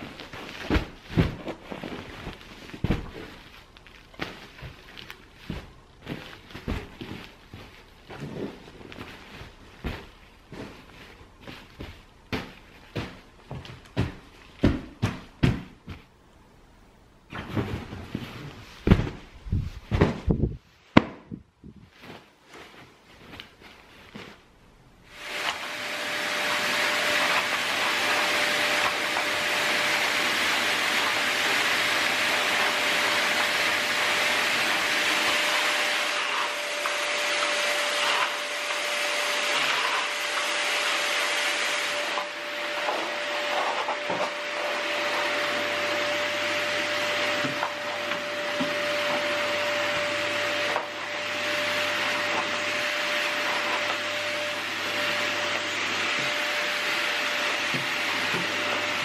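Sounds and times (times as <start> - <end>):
vacuum cleaner whine: 25.0 - 59.0
vacuum nozzle on carpet: 25.1 - 59.0.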